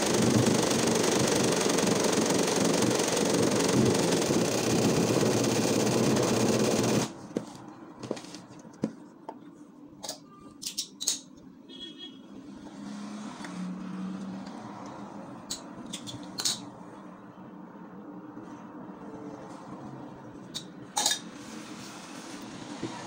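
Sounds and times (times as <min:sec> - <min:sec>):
sewing machine running: 0:00.0 - 0:07.2.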